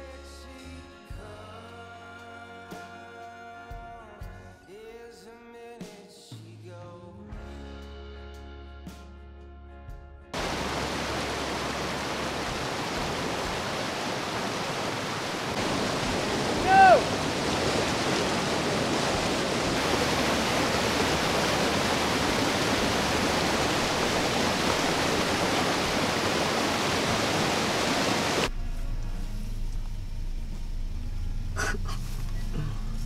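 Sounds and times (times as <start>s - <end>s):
creek rushing over rapids: 10.4s - 28.5s.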